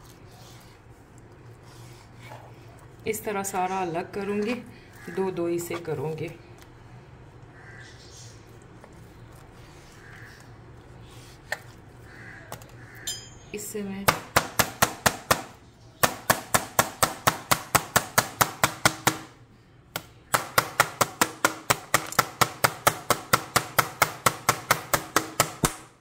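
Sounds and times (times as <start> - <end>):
meat mallet pounding chicken: 14.1 - 19.3, 20.3 - 25.8.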